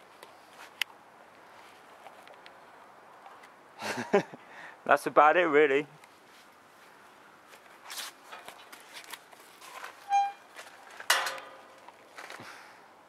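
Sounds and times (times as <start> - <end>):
footsteps: 6.2 - 12.5.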